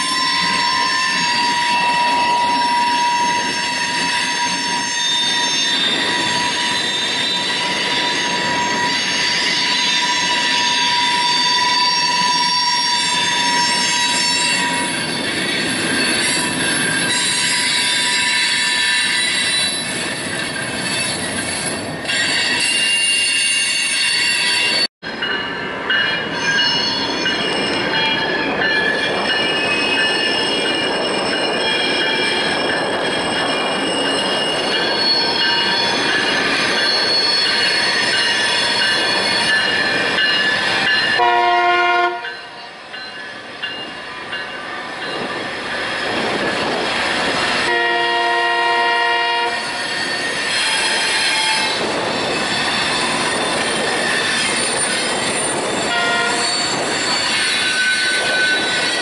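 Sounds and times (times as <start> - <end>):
train wheels squealing: 0.0 - 41.2, 42.3 - 47.7, 49.3 - 59.0
rumble of train cars: 0.0 - 59.0
train horn: 41.2 - 42.6, 47.6 - 49.7, 55.9 - 56.6.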